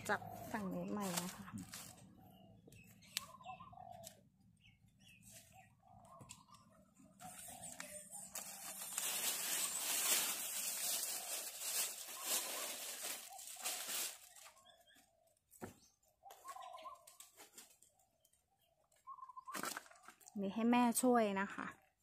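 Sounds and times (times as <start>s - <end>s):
plastic crinkling: 1.0s - 2.1s, 7.2s - 14.9s.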